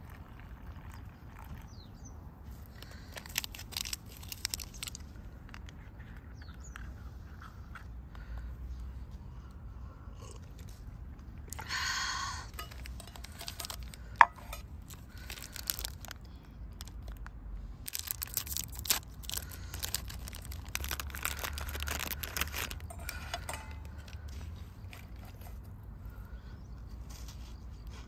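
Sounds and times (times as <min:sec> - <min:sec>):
plastic wrapper crinkling and tearing: 0:02.8 - 0:05.8, 0:12.5 - 0:24.3.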